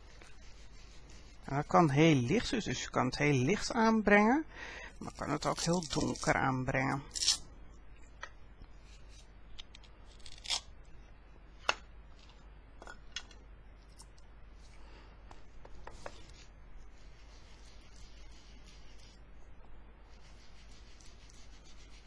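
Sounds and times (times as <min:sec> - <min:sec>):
sponge rubbing on paper: 0:00.0 - 0:02.2, 0:15.9 - 0:19.3, 0:20.1 - 0:22.0.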